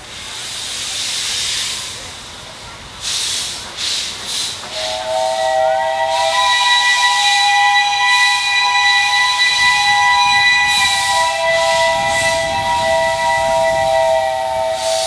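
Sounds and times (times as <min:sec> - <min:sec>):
steam venting in hissing bursts: 0:00.0 - 0:15.0
steam locomotive whistle: 0:03.9 - 0:15.0.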